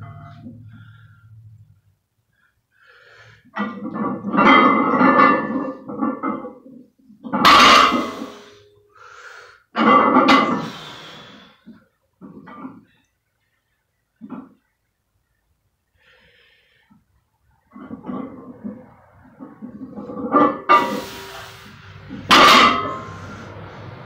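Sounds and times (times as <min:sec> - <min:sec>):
weightlifter grunting and breathing: 0:20.8 - 0:24.0.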